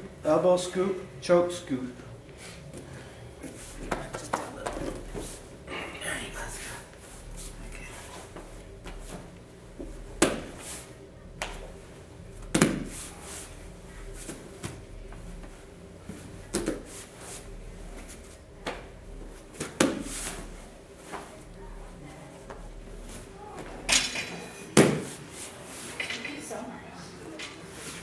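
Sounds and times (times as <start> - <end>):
bodies thudding on foam mat: 8.4 - 10.7, 12.4 - 13.1
shuffling and cloth movement: 19.2 - 23.9.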